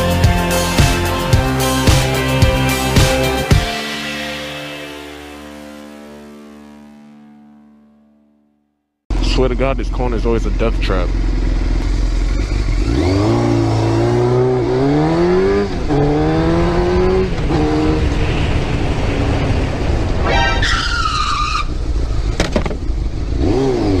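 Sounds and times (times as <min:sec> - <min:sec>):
motorcycle engine accelerating: 0:09.1 - 0:20.6, 0:21.7 - 0:24.0
traffic noise: 0:11.1 - 0:24.0
high squeal: 0:20.2 - 0:21.9.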